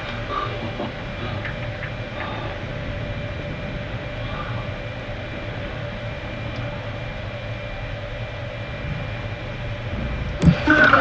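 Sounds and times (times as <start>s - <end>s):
faint motor whine: 0.0s - 11.0s
underwater motors rumbling: 0.0s - 11.0s.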